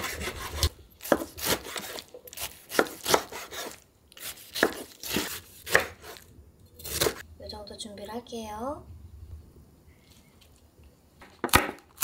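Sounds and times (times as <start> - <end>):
knife cutting on wooden board: 0.0 - 6.2.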